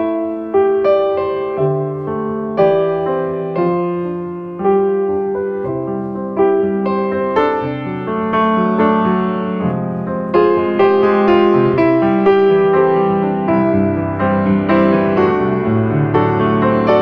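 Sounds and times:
slow piano melody: 0:00.0 - 0:17.0.

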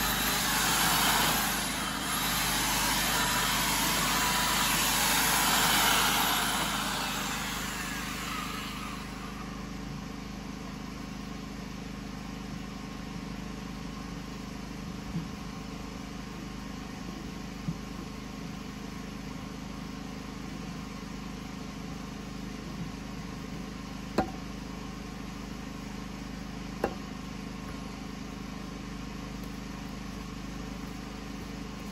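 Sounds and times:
electric power tool on log: 0:00.0 - 0:09.7
engine-like hum: 0:00.0 - 0:18.4
sharp knocks: 0:24.2 - 0:24.4, 0:26.8 - 0:27.0.

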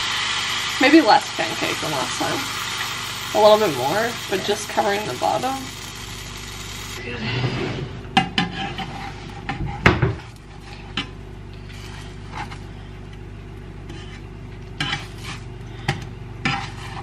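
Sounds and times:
steady low hum: 0:00.0 - 0:17.0
spatula scraping frying pan: 0:07.5 - 0:09.8, 0:10.5 - 0:12.6, 0:13.8 - 0:15.5, 0:16.4 - 0:17.0.

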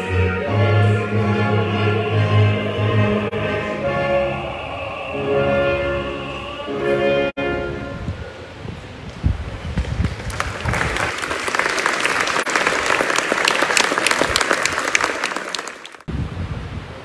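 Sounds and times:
audience applauding: 0:09.8 - 0:16.1.

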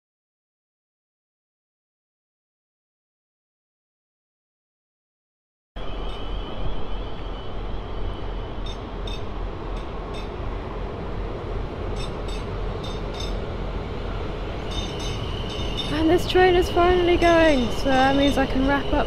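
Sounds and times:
train engine rumble: 0:05.8 - 0:19.0
thin high whine: 0:11.9 - 0:13.5, 0:14.5 - 0:19.0.

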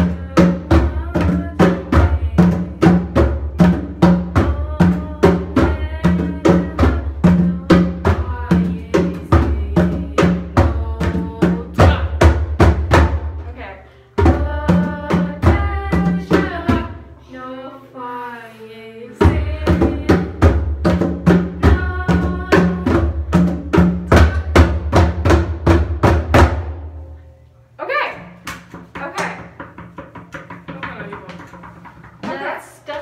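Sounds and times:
conga drums played by hand: 0:00.0 - 0:13.6, 0:14.2 - 0:17.0, 0:19.2 - 0:26.9, 0:28.5 - 0:32.8.

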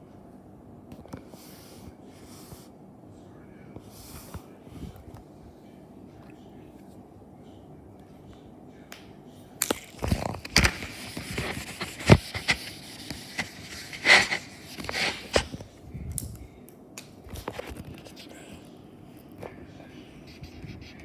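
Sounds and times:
short scraping rustles: 0:10.7 - 0:15.6.

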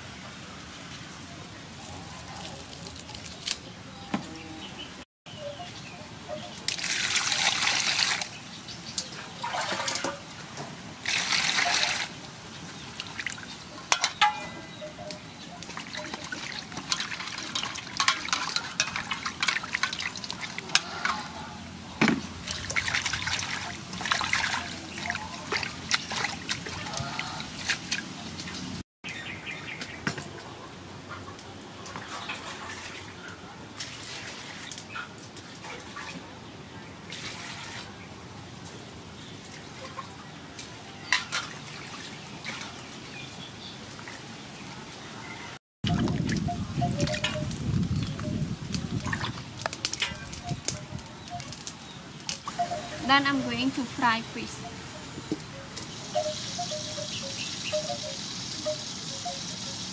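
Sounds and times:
water splashing in a metal basin: 0:06.6 - 0:10.4, 0:11.0 - 0:12.2, 0:12.8 - 0:14.6, 0:15.6 - 0:21.4, 0:22.2 - 0:28.6, 0:33.8 - 0:34.8, 0:37.1 - 0:37.9, 0:41.1 - 0:43.0, 0:45.8 - 0:53.9
water rushing: 0:09.2 - 0:14.4, 0:22.3 - 0:28.8.

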